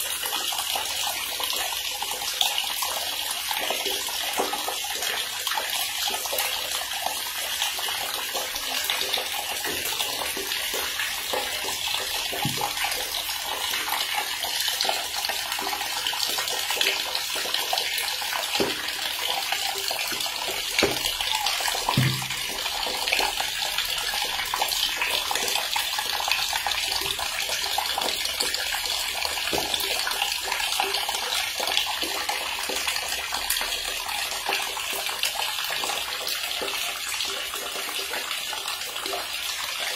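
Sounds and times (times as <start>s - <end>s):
water running from a tap: 0.0s - 39.9s
water splashes: 3.5s - 32.2s.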